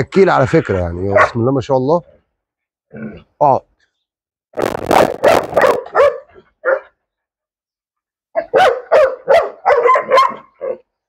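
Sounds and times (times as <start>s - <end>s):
dog barking: 1.1s - 1.5s, 4.9s - 7.0s, 8.3s - 10.9s.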